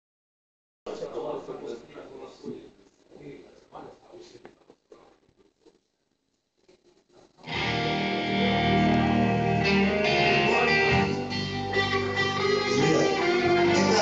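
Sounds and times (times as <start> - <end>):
band music over speakers: 7.4 - 14.0
electric guitar: 7.4 - 14.0.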